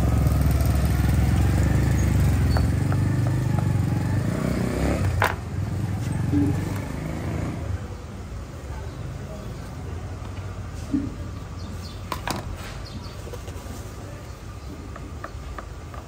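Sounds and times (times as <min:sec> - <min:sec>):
motorcycle engine rumbling: 0:00.0 - 0:16.0.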